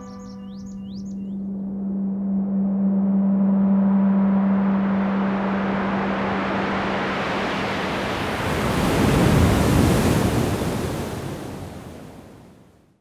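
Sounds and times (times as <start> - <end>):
low steady hum: 0.0 - 8.3
ocean wave rushing in: 3.9 - 12.7.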